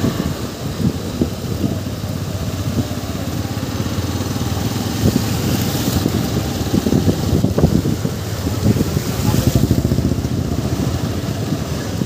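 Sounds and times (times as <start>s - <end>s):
motorcycle engine rumble: 0.0s - 12.0s
tyres hissing on wet road: 0.0s - 12.0s.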